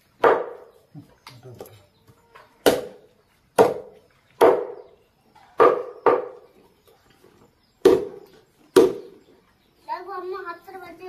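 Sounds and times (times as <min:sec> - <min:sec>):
knife chopping on wooden board: 0:03.6 - 0:04.8.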